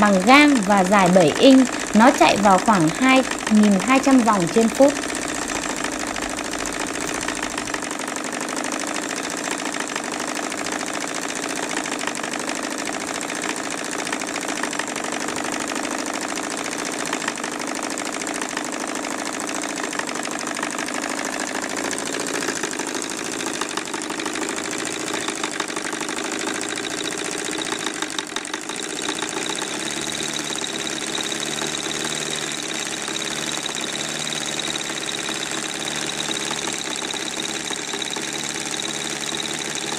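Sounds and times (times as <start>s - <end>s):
thin high whine: 0.0s - 7.9s, 28.8s - 39.9s
model diesel engine running: 0.0s - 39.9s.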